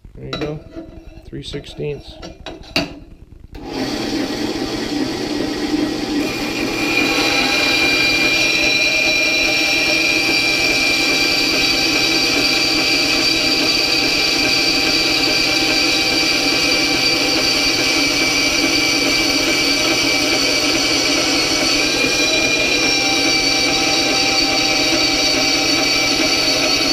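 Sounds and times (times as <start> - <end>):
bandsaw blade whine: 3.6 - 26.9
metal grinding hiss: 6.7 - 11.9.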